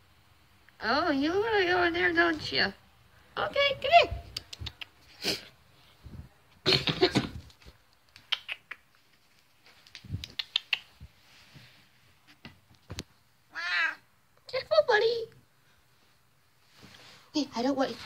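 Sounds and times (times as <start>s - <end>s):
rustles and soft clicks: 6.0s - 13.2s.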